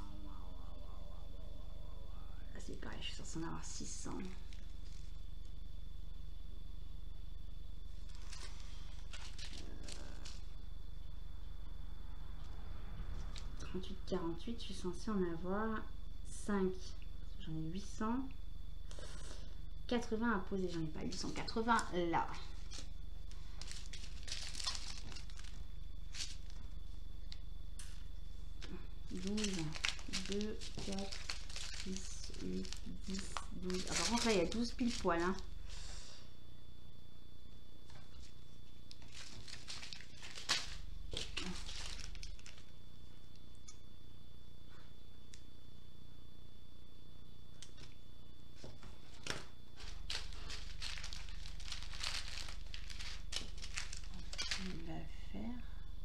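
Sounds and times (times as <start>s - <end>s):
steady low hum: 0.0s - 56.0s
plastic bags crinkling: 7.9s - 10.5s, 21.0s - 26.8s, 28.6s - 35.7s, 38.0s - 42.7s, 49.0s - 54.8s.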